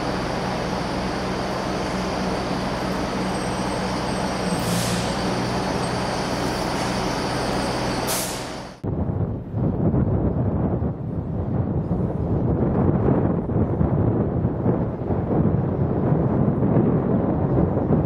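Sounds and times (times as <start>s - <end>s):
diesel train running: 0.0s - 8.8s
air brake hisses: 4.5s - 5.4s, 8.0s - 8.8s
wind buffeting microphone: 8.8s - 18.0s.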